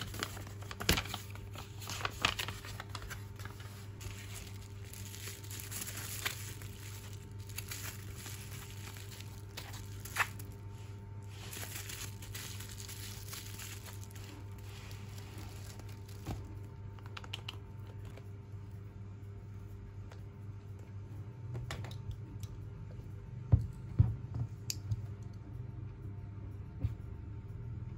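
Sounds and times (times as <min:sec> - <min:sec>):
bubble wrap crinkling: 0:00.0 - 0:18.2
bubble wrap snap: 0:04.0 - 0:10.6.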